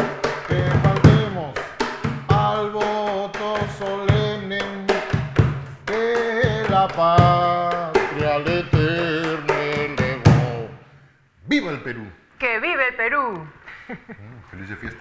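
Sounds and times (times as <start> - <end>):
person singing: 0.0 - 5.1, 5.8 - 10.8
hand percussion strikes: 0.0 - 10.7.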